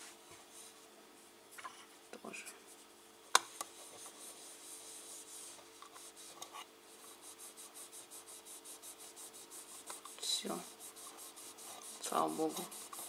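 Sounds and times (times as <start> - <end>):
cotton pad scrubbing: 7.0 - 13.0.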